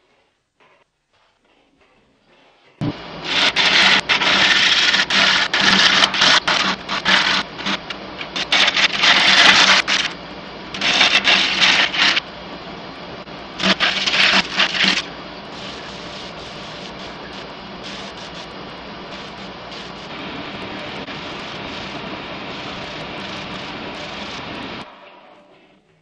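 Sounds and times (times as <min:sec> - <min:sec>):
lathe motor hum: 0:02.8 - 0:24.8
gouge scraping spinning wood: 0:03.3 - 0:10.2, 0:10.8 - 0:12.2, 0:13.6 - 0:20.1.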